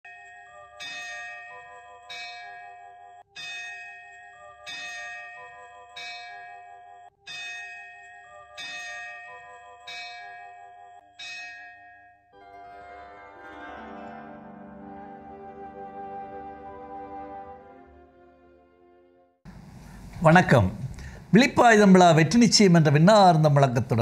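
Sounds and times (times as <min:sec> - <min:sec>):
bell-like chimes ringing: 0:00.0 - 0:14.5.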